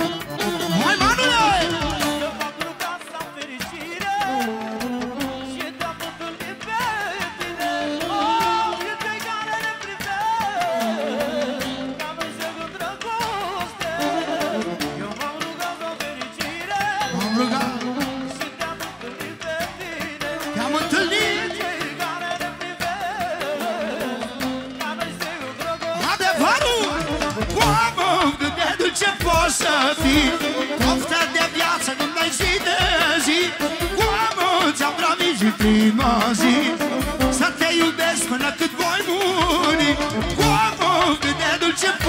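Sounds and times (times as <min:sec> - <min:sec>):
keyboard: 0:00.0 - 0:42.0
steady drum beat: 0:11.7 - 0:42.0.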